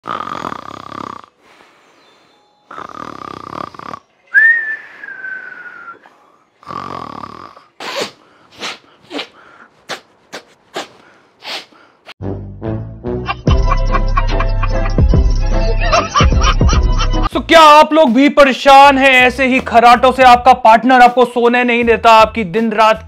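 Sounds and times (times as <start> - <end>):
person snoring: 0.0 - 4.1, 5.8 - 9.5
whistling breath: 1.4 - 2.6, 4.3 - 6.6
short quick snorts: 7.8 - 12.1.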